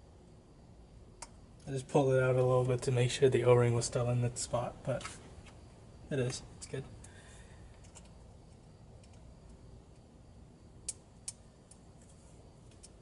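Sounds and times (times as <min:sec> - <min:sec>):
sharp plastic clicks: 0:10.8 - 0:11.9.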